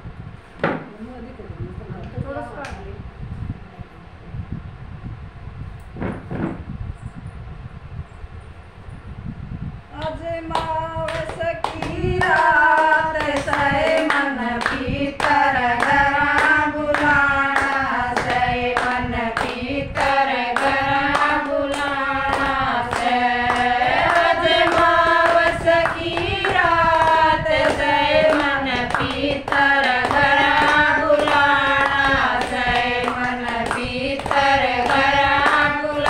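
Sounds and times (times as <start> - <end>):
hand-clapping: 10.0 - 36.0
women singing devotional song: 10.0 - 36.0.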